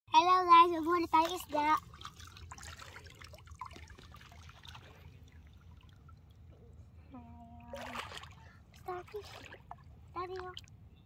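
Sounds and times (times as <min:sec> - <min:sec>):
shallow water splashing around legs: 0:01.0 - 0:06.4, 0:07.6 - 0:10.7.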